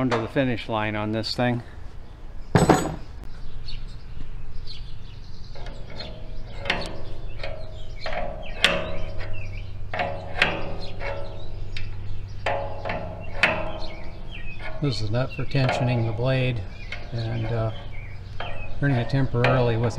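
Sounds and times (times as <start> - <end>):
wrench knocking on metal nut: 6.6 - 19.9.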